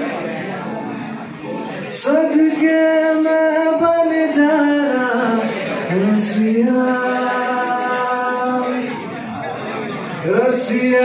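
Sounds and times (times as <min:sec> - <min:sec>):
acoustic guitar strumming: 0:00.0 - 0:11.0
man singing long notes: 0:01.9 - 0:09.1.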